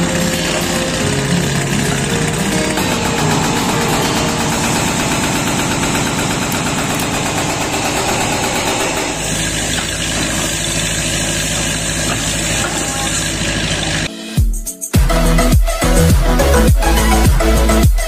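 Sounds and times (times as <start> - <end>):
diesel engine running: 0.0 - 14.1
hydraulic breaker hammering concrete: 0.0 - 14.1.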